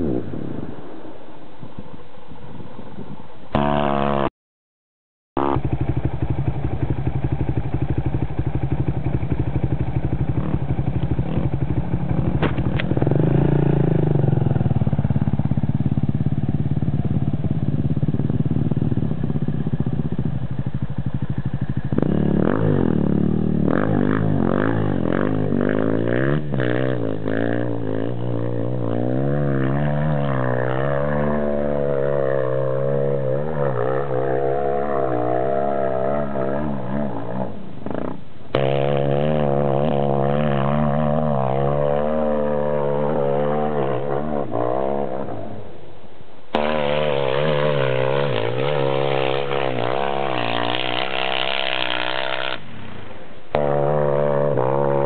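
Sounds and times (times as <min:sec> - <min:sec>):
dirt bike engines revving: 0:05.4 - 0:45.8, 0:46.5 - 0:52.9, 0:53.5 - 0:55.0.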